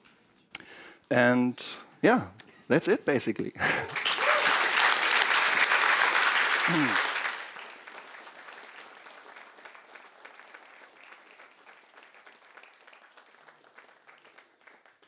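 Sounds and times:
audience applauding: 3.7 - 15.0.

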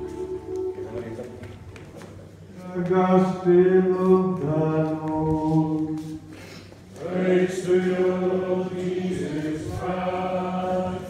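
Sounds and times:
group chanting in unison: 7.0 - 11.0.

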